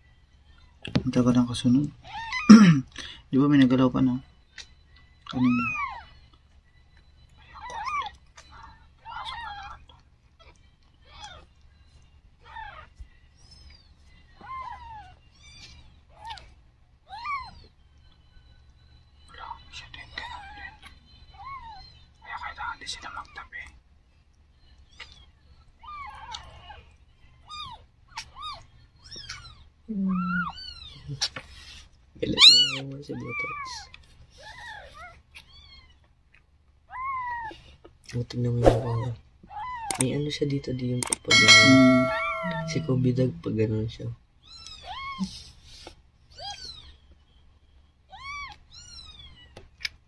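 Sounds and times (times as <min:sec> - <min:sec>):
kittens mewing: 0:02.0 - 0:03.0, 0:05.4 - 0:06.0, 0:32.3 - 0:36.0, 0:41.3 - 0:43.0.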